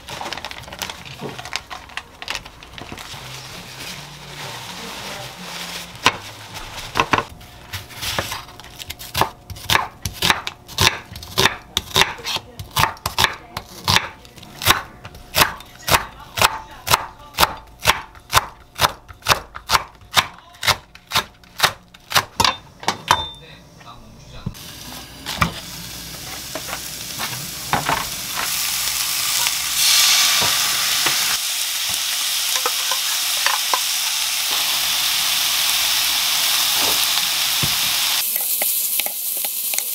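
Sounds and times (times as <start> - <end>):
knife chopping on wooden board: 9.1 - 22.6
meat sizzling in a frying pan: 24.6 - 39.9.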